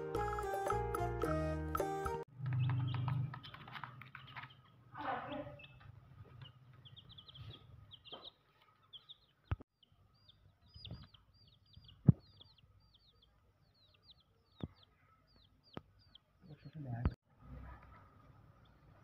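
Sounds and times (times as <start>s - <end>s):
chicks peeping: 2.4s - 17.2s.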